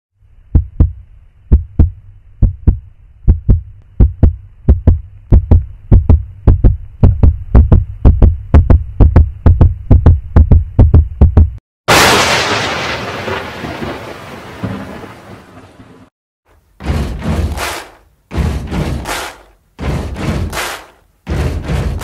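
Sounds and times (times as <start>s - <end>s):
heartbeat thumps: 0.4s - 11.6s, 17.0s - 22.0s.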